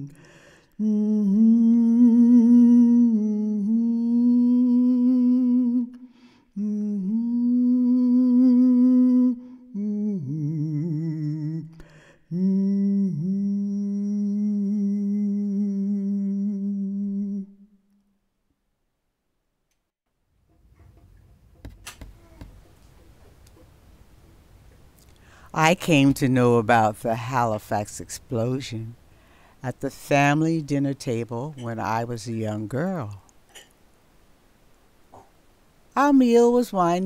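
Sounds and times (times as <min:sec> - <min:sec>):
person humming a slow tune: 0:00.0 - 0:17.8, 0:22.1 - 0:22.6.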